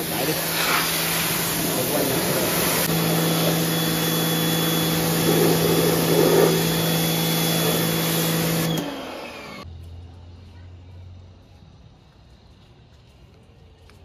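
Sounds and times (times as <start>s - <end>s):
water spray hissing on metal: 0.0s - 3.6s
pressure washer motor humming: 0.0s - 9.7s.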